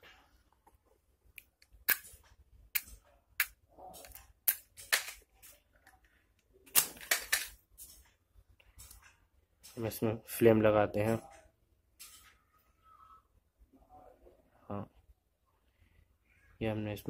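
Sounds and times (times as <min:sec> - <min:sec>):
small objects clicking and tapping: 0:01.3 - 0:06.1.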